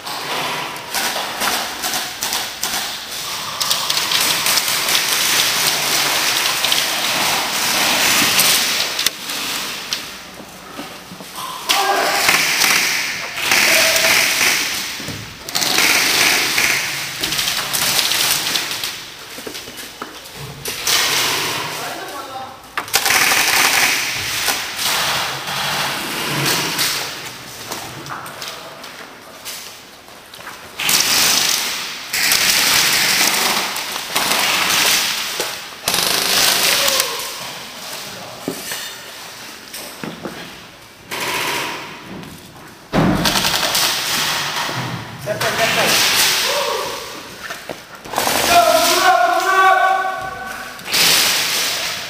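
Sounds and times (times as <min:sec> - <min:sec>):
airsoft guns firing bursts: 0:12.2 - 0:14.9, 0:15.5 - 0:17.0, 0:22.9 - 0:24.6, 0:35.8 - 0:37.0.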